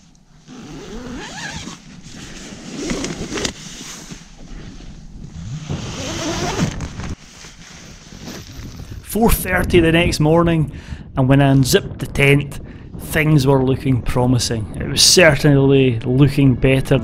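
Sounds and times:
tent zipper unzipping: 0.4 - 4.3, 5.2 - 8.6.

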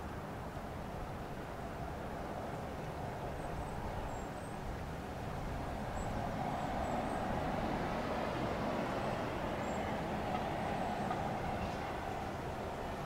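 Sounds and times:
hum of road traffic: 0.0 - 13.0
vehicle passing: 5.6 - 13.0.

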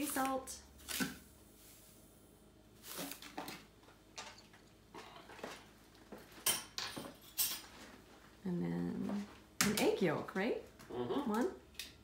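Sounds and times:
kitchen utensils and dishes clinking: 6.4 - 7.8.

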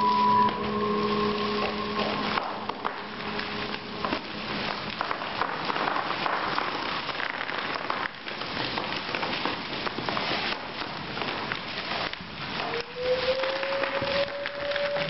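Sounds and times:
plastic bags crackling: 0.0 - 15.0
plastic crinkling on floor: 0.0 - 15.0.

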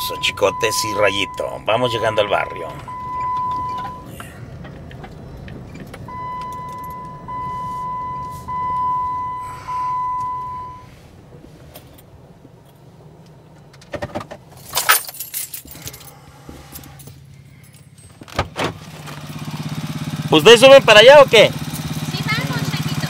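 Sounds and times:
metallic jangling and clicks: 14.6 - 18.4
engine idling: 15.5 - 23.0.

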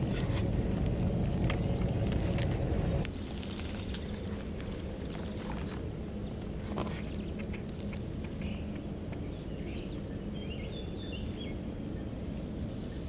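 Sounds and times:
dry leaves crackling: 0.0 - 8.8
low rumble with faint hum: 0.0 - 13.0.

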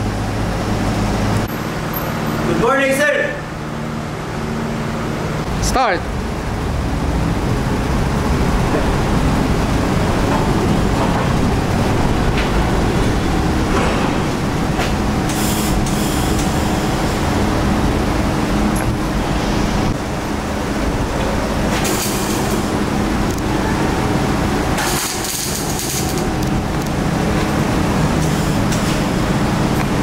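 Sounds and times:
welding arc crackle and hiss: 15.2 - 17.0, 21.6 - 22.8, 24.7 - 27.5.

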